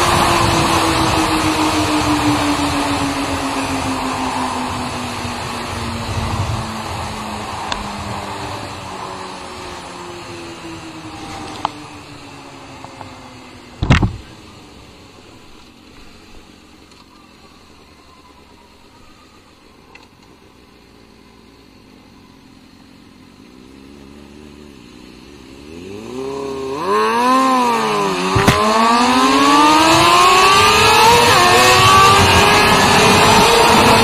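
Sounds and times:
motorcycle engine revving: 0.0s - 14.4s, 23.0s - 34.0s.

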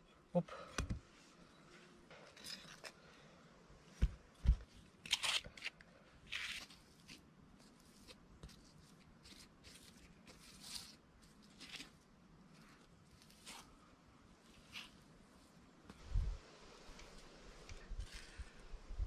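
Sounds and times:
gritty scrapes and crunches: 5.0s - 15.1s, 17.7s - 18.6s.

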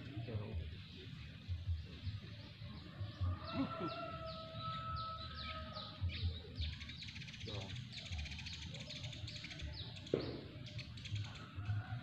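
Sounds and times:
bird chirping: 0.0s - 12.0s.

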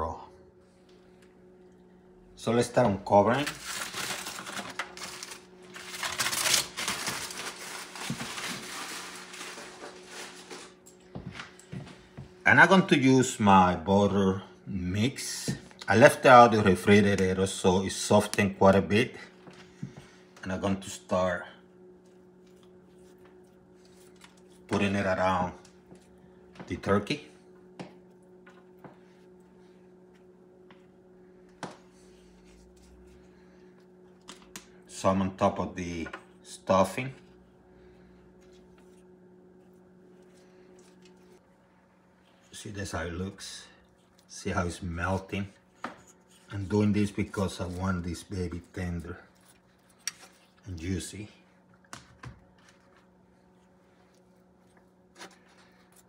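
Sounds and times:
steady low hum: 0.0s - 56.0s
aluminium foil crinkling: 3.3s - 10.9s.

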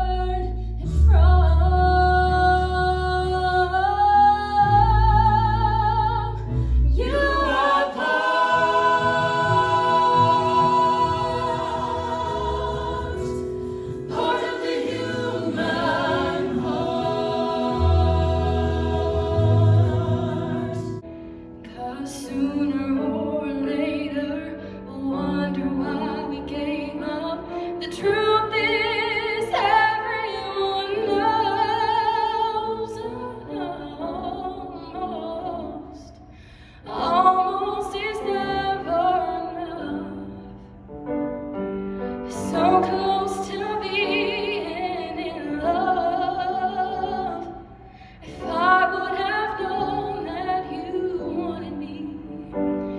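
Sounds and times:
grand piano: 0.0s - 52.9s
choir holding a chord: 6.9s - 21.1s.

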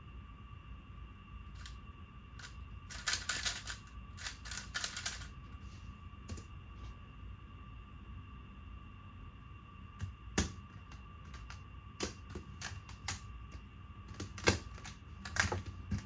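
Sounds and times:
plastic puzzle cube clicking: 2.4s - 5.3s.

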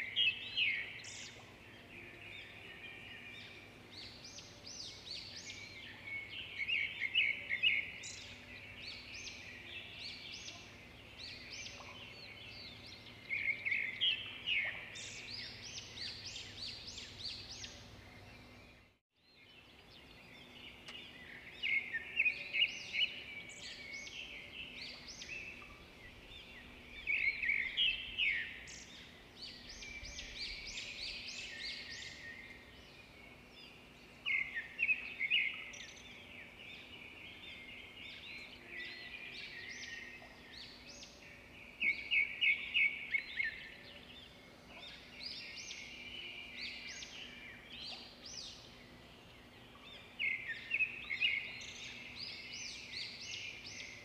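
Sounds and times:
birds chirping: 0.0s - 54.0s
faint outdoor hiss: 0.0s - 54.0s.

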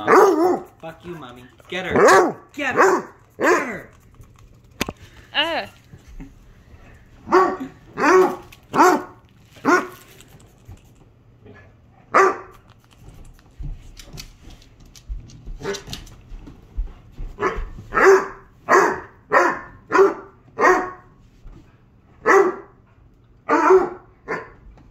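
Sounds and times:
dog barking: 0.0s - 0.8s, 1.9s - 3.8s, 7.2s - 10.0s, 12.1s - 12.6s, 17.4s - 21.1s, 22.2s - 22.8s, 23.5s - 24.6s.

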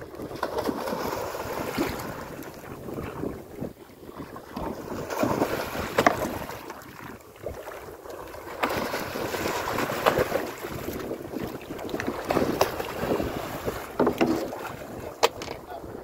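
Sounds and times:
wind buffeting microphone: 0.0s - 7.7s, 8.7s - 16.0s
fish thrashing and splashing: 0.3s - 2.4s.

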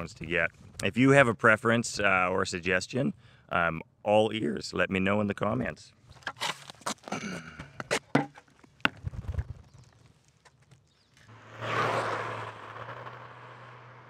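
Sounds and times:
electric board rolling on asphalt: 10.5s - 14.0s.

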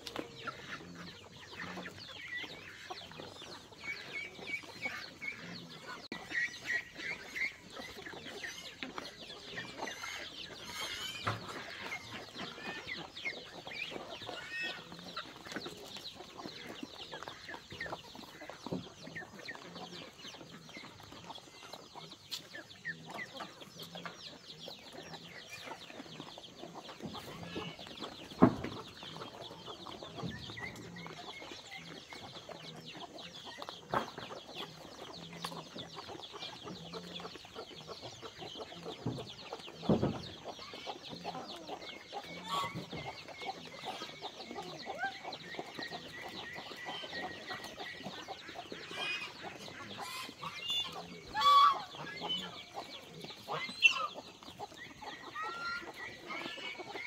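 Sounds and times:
chickens clucking: 0.0s - 57.0s
loud pitched chicken call: 51.3s - 51.9s.

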